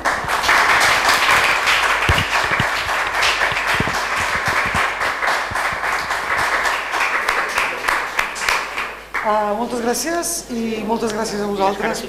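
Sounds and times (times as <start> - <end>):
audience applauding: 0.0 - 9.3
loud single claps: 0.0 - 9.3.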